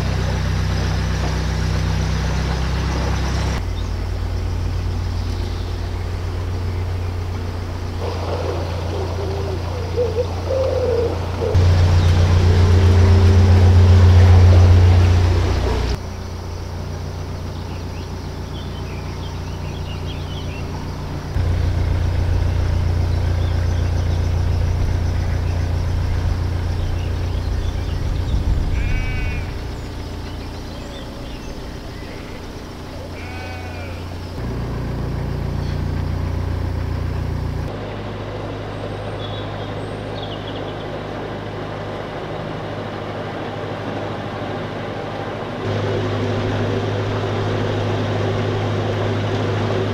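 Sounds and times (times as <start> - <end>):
boat diesel engine running: 0.0 - 49.9
sheep bleating: 28.7 - 29.7, 32.0 - 34.2.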